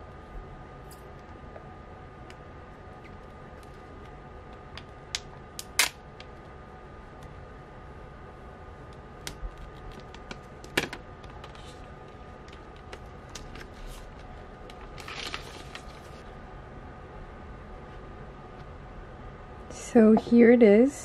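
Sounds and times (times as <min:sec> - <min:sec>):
plastic film crumpling: 0:13.2 - 0:16.2.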